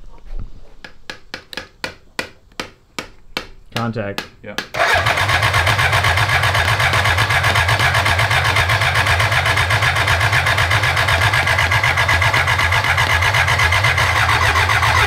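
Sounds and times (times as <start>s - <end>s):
motorcycle engine cranking: 4.8s - 15.0s.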